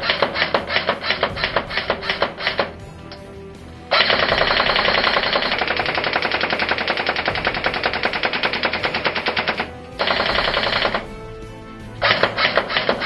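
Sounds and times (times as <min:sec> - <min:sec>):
airsoft rifle full auto bursts: 0:03.9 - 0:11.1.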